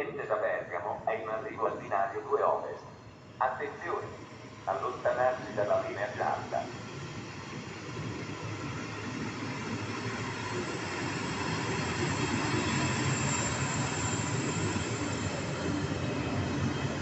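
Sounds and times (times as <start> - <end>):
high wheel squeal: 11.1 - 15.6.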